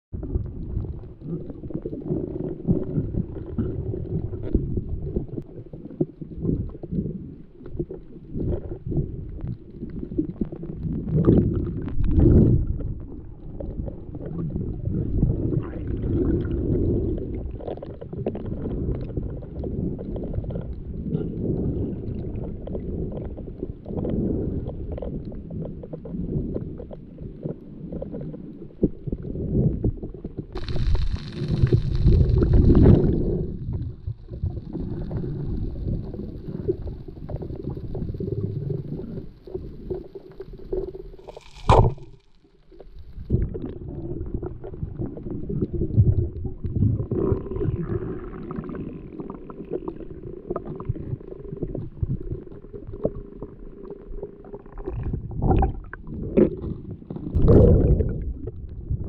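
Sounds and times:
muffled underwater water rumble: 0.1s - 59.0s.

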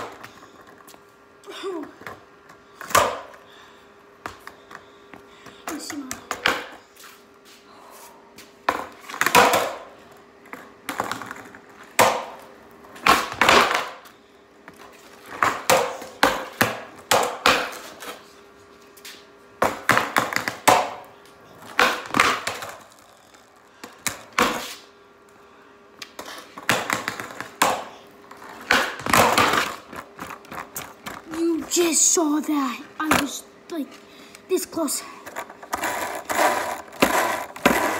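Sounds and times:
faint hum: 0.0s - 37.9s
skateboard clacking on concrete: 8.7s - 9.9s, 13.0s - 14.0s, 15.3s - 18.2s, 19.6s - 24.7s, 26.0s - 31.4s, 35.2s - 37.9s.

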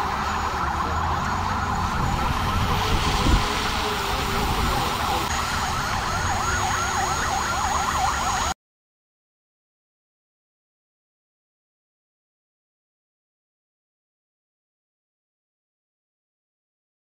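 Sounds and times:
sirens yelping: 0.0s - 8.6s.

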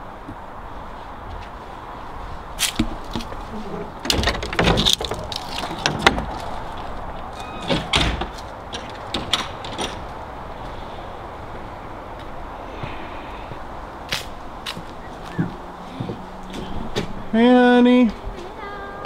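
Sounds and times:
outdoor background: 0.0s - 19.0s
wooden gate clicks and knocks: 2.8s - 10.2s.

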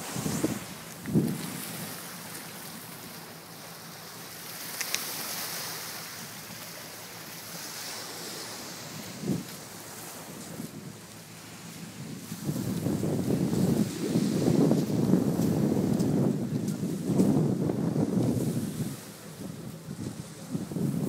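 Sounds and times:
wind buffeting microphone: 0.0s - 2.4s, 8.3s - 21.0s
small waves breaking on sand: 0.0s - 21.0s.

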